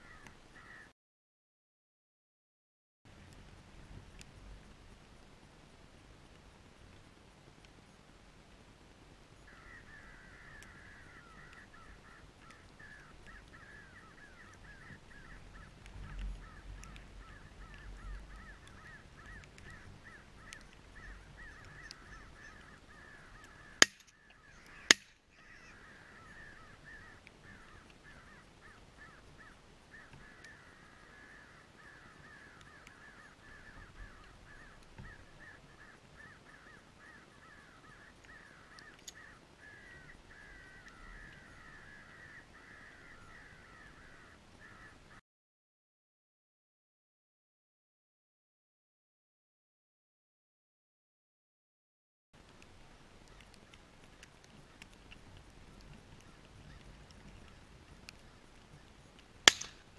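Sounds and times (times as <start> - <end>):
crows cawing: 0.0 - 0.9, 9.5 - 45.2, 59.4 - 59.9
shotgun blasts: 59.4 - 59.9.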